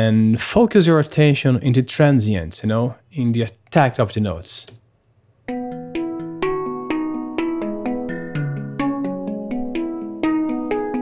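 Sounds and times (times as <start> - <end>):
handpan melody: 5.5 - 11.0.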